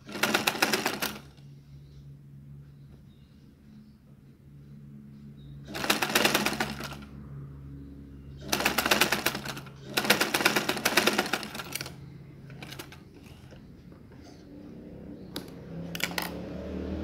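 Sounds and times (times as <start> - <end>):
sewing machine needle clatter: 0.1 - 1.3, 5.7 - 7.0, 8.4 - 13.4.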